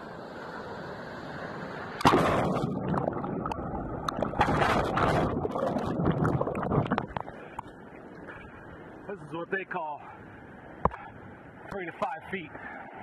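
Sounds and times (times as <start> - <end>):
ocean wave rushing in: 0.0 - 9.1
loud wave crash: 2.0 - 3.4
churning underwater bubbling: 2.0 - 7.7.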